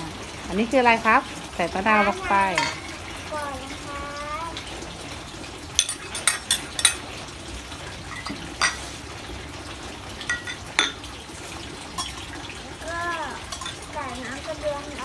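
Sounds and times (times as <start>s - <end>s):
metal and ceramic bowls clinking: 2.3s - 3.0s, 5.8s - 7.0s, 8.1s - 8.8s, 10.3s - 11.0s, 12.0s - 12.3s, 13.5s - 13.8s.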